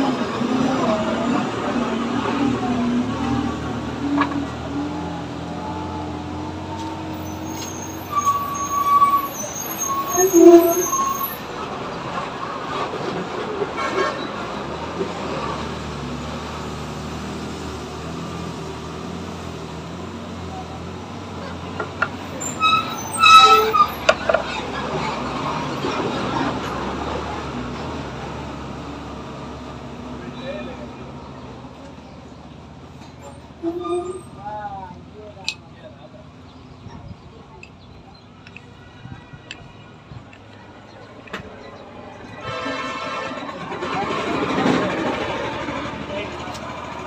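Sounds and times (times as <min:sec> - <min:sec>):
traffic hum: 0:00.0 - 0:47.0
vehicle horns honking: 0:07.2 - 0:11.4, 0:22.4 - 0:24.1, 0:42.3 - 0:43.7.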